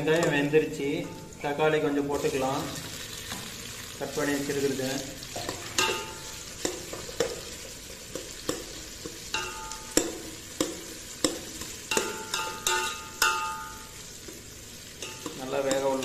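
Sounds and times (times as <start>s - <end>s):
oil sizzling: 0.0s - 16.0s
pot ringing: 5.4s - 7.3s, 9.3s - 14.0s, 15.0s - 16.0s.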